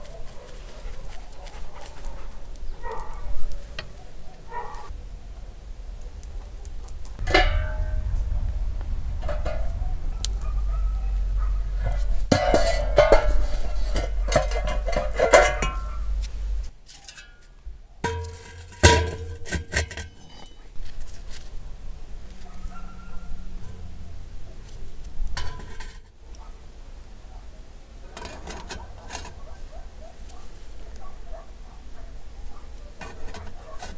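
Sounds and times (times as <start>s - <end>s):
low rumble: 4.9s - 16.7s, 21.3s - 25.4s
metal poker scraping charcoal: 11.8s - 21.6s, 28.1s - 29.6s, 33.0s - 33.9s.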